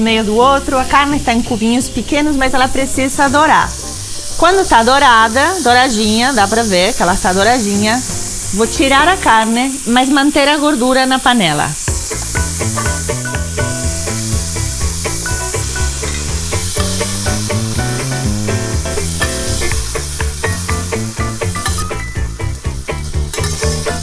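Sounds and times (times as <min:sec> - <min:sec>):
background music with bass: 0:00.0 - 0:05.5, 0:11.9 - 0:24.0
meat sizzling in oil: 0:00.0 - 0:24.0
spoon scraping a pan: 0:15.9 - 0:17.4, 0:21.6 - 0:22.0, 0:23.3 - 0:24.0.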